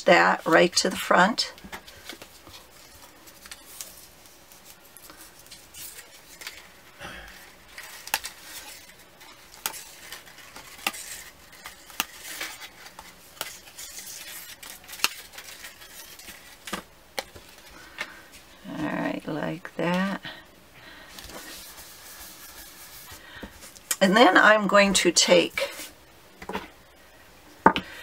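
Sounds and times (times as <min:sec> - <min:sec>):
paper rustling: 0:07.4 - 0:17.7.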